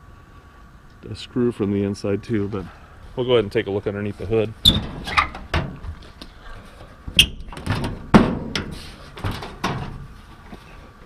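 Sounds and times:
metal hood clunks and clicks: 4.6s - 5.9s, 7.1s - 10.1s.

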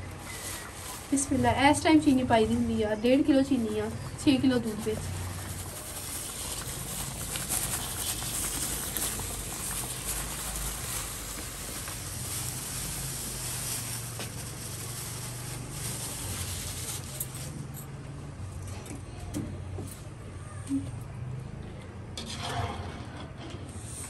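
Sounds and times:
pan of milk hissing and crackling: 4.6s - 17.1s.

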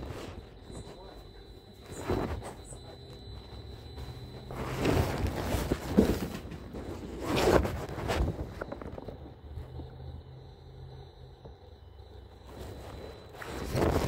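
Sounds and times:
faint high-pitched tone: 0.0s - 6.3s
handling noise on microphone: 0.0s - 9.2s.

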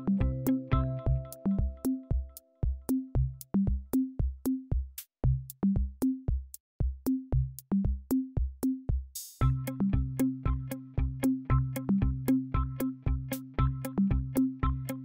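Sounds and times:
electronic music: 0.0s - 3.2s
drum machine beat: 0.0s - 15.0s.

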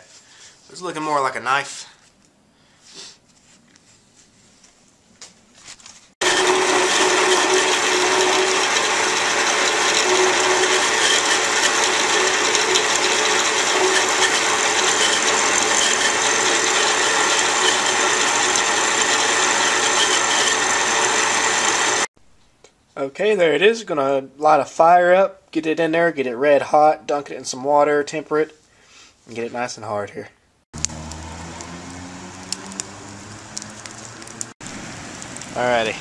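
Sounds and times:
electric drill boring through steel: 6.2s - 22.1s, 30.8s - 35.5s.

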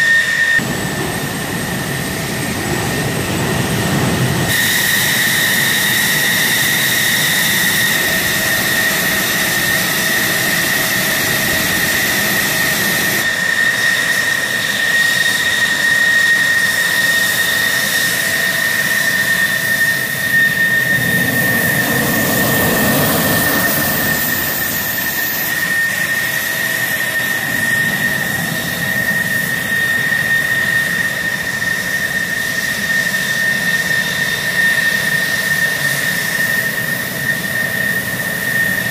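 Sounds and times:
jet engine turbine whine: 0.0s - 38.9s
jet exhaust rushing: 0.0s - 38.9s
jet taxiing past: 0.0s - 38.9s.

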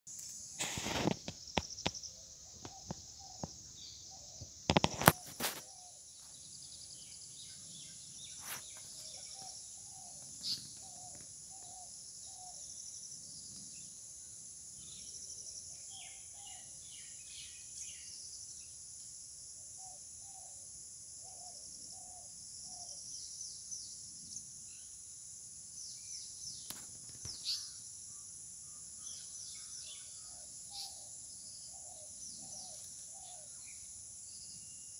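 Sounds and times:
high insect drone: 0.1s - 34.9s
birds calling: 0.8s - 12.6s, 26.1s - 34.6s.

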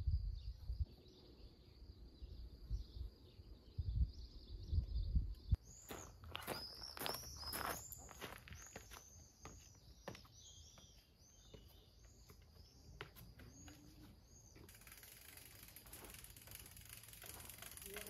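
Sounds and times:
bird chirping: 0.0s - 18.0s
footsteps on stone steps: 5.8s - 14.7s.

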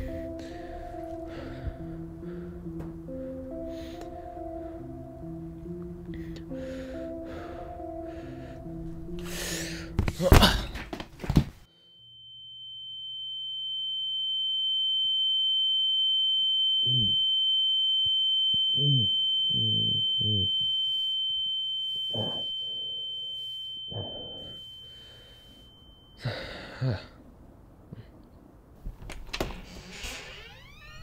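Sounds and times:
music: 0.0s - 10.9s
high-pitched ringing tone: 11.7s - 26.7s
low hum: 12.1s - 28.7s.

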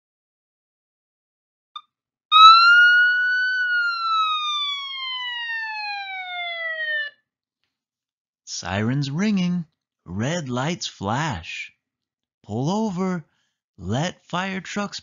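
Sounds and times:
fire truck siren wail: 2.3s - 7.2s.

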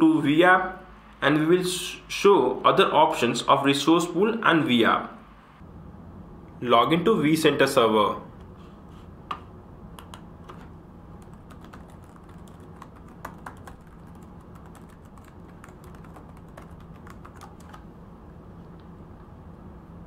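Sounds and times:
faint low hum: 0.0s - 20.0s
keyboard keys clicking: 11.2s - 17.8s.

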